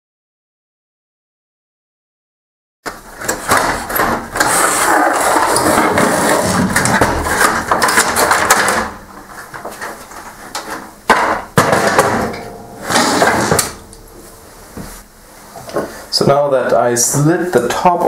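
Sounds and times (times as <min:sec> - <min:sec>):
plastic parts rubbing and knocking: 0:02.9 - 0:12.2
plastic scraping and rattling: 0:03.0 - 0:13.8.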